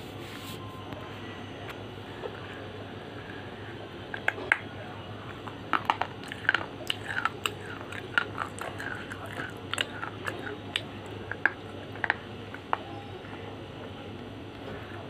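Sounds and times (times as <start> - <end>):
teeth crunching: 4.1 - 4.7, 5.3 - 13.4.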